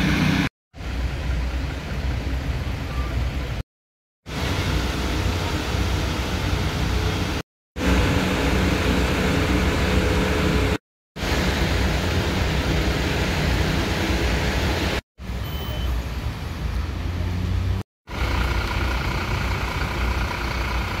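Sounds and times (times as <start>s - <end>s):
street traffic noise: 0.0s - 3.6s, 4.3s - 21.0s
diesel engines idling: 4.3s - 14.9s, 18.1s - 21.0s.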